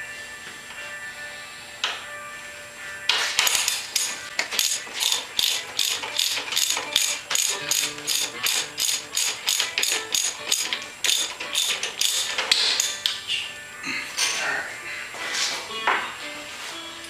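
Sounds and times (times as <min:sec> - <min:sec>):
ratchet wrench clicking: 0:03.4 - 0:13.2.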